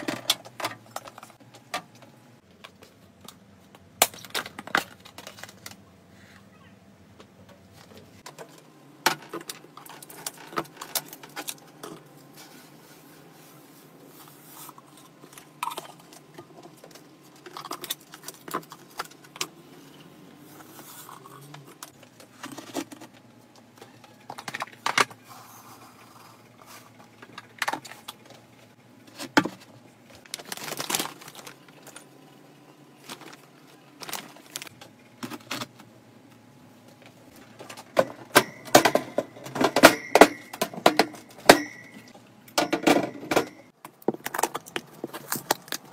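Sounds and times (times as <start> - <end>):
plastic containers clicking and rustling: 0.0 - 5.8, 7.2 - 12.2, 15.1 - 19.6, 21.5 - 25.2, 29.1 - 32.1, 33.0 - 35.9, 37.0 - 45.9.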